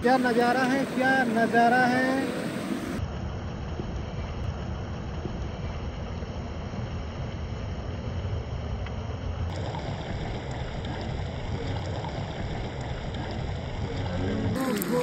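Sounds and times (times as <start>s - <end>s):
stream rushing over rocks: 9.5s - 15.0s.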